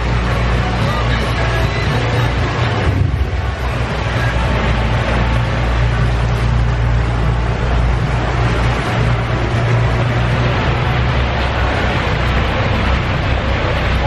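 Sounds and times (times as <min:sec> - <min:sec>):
boat engine droning: 0:00.0 - 0:14.0
water rushing in wake: 0:00.0 - 0:14.0.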